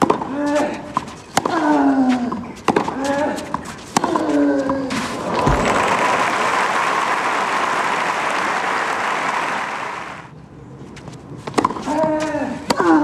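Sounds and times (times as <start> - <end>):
crowd applauding: 5.1 - 10.3.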